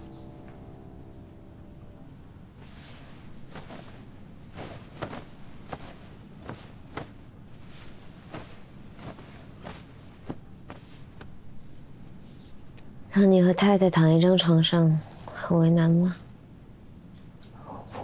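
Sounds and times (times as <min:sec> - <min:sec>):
low steady hum: 0:00.0 - 0:18.0
bedding rustling: 0:02.4 - 0:12.8.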